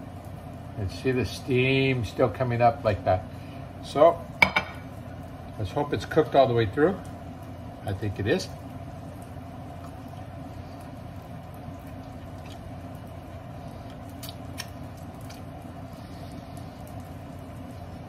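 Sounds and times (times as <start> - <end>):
steady background hum: 0.0 - 18.0
person chewing food: 12.0 - 12.7, 13.7 - 17.1.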